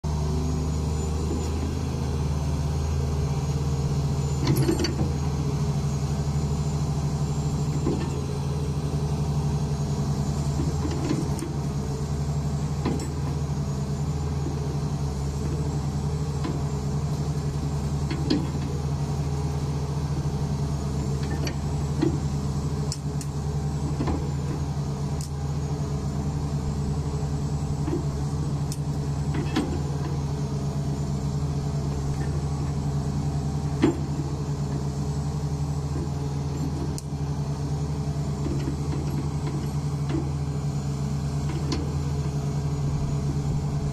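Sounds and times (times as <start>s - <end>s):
excavator diesel engine running: 0.0s - 43.9s.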